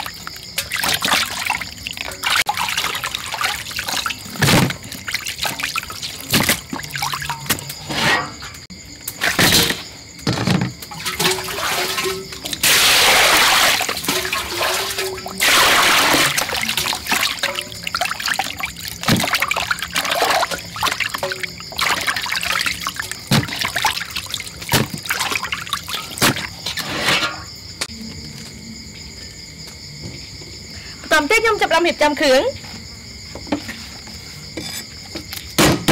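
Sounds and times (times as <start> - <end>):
water pouring into basin: 0.0 - 7.5, 10.9 - 26.6
water splashing: 0.0 - 8.0, 10.9 - 26.9.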